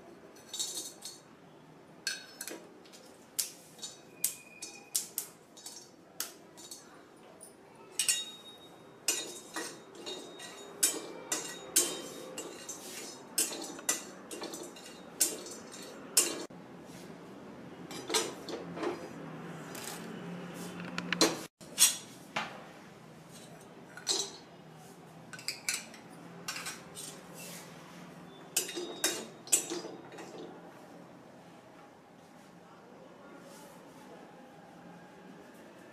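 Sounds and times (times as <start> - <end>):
spices stirred and roasting: 8.0 - 16.5.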